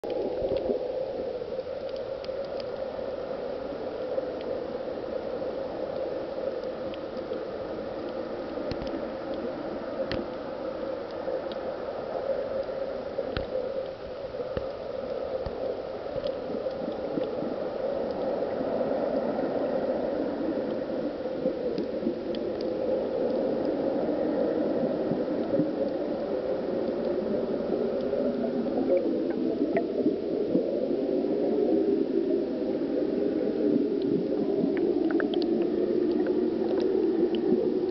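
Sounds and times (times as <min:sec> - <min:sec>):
underwater gas bubbling: 0:00.0 - 0:37.9
sharp underwater clicks: 0:01.5 - 0:02.9, 0:05.9 - 0:09.4, 0:10.0 - 0:10.4, 0:12.5 - 0:17.4, 0:34.0 - 0:37.9.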